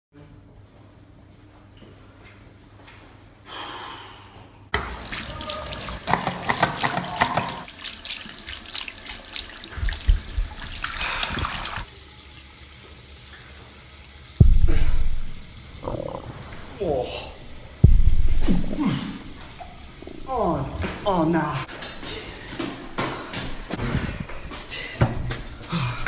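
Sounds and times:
tap water on washing hands: 4.7 - 11.9, 17.4 - 21.1
loud low rumble: 14.4 - 16.2, 17.8 - 18.8.

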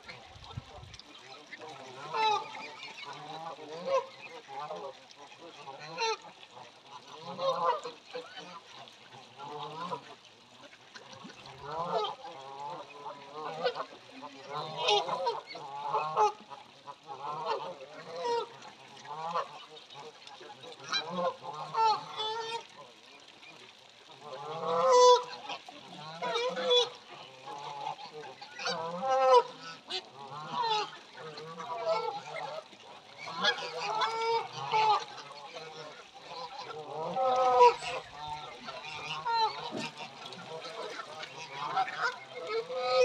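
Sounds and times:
geese honking: 24.3 - 43.0.

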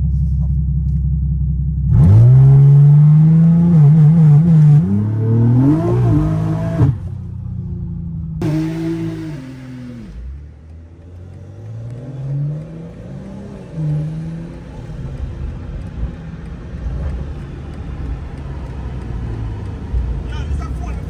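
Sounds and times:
engine and tyre noise: 0.0 - 21.0
car engine revving: 1.4 - 21.0.

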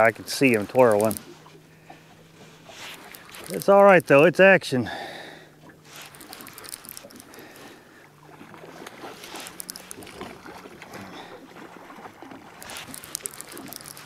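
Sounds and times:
faint ticks and clicks: 0.0 - 4.4, 5.6 - 7.7, 8.8 - 10.9, 12.6 - 14.0.

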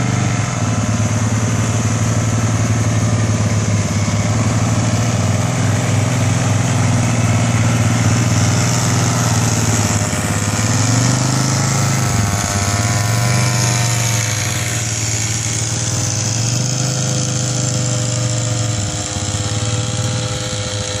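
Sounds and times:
quad bike engine: 0.0 - 21.0
small petrol pump engine: 0.0 - 21.0.

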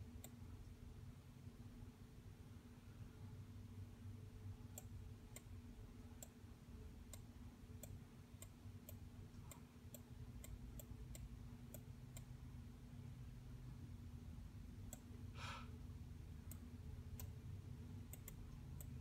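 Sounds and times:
steady low hum: 0.0 - 19.0
computer mouse clicks: 18.1 - 19.0.

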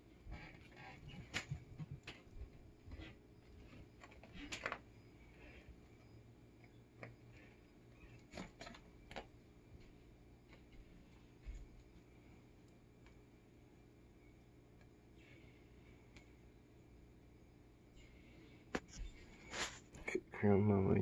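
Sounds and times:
low steady hum: 0.0 - 21.0
cat playing with toy on carpet: 0.3 - 5.8.

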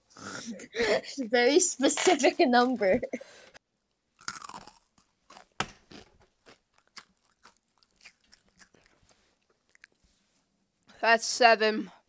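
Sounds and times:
crunchy snack being chewed: 4.2 - 10.1.

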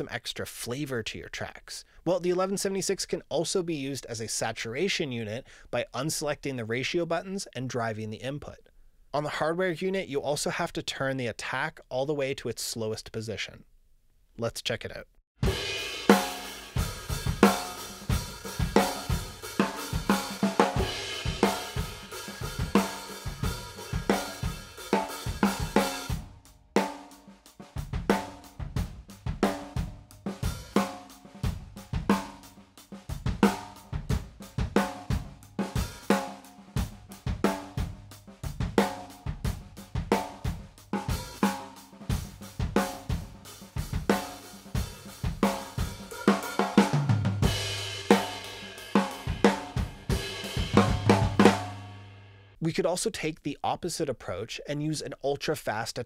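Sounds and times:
saturated acoustic drum kit: 15.4 - 55.9.

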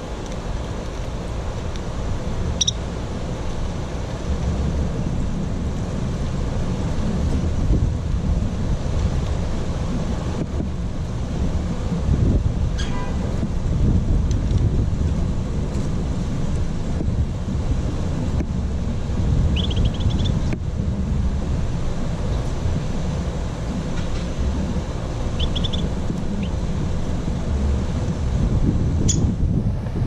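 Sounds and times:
wind on the microphone: 0.7 - 30.0
bird chirps: 2.6 - 2.8, 19.6 - 20.4, 25.4 - 26.6.

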